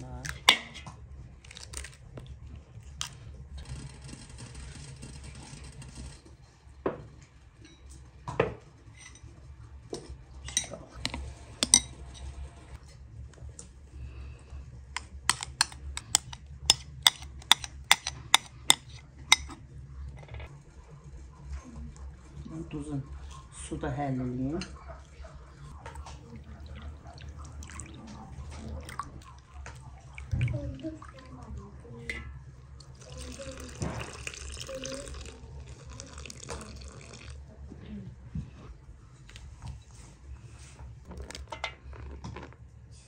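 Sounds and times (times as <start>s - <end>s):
spoon clinking against glass bowl: 10.4s - 12.3s, 15.3s - 19.6s.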